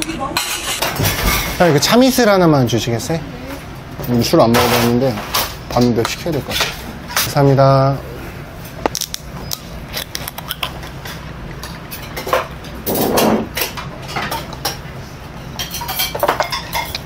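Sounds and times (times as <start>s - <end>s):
glass and dishes clinking: 15.6s - 17.0s.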